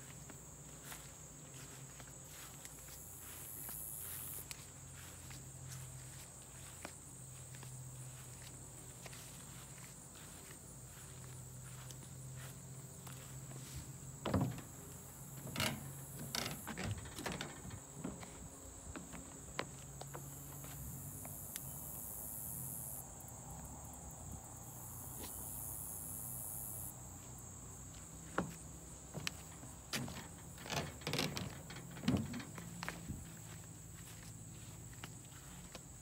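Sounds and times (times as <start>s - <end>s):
footsteps in grass: 0.0s - 15.4s, 27.1s - 36.0s
insects chirring: 0.0s - 36.0s.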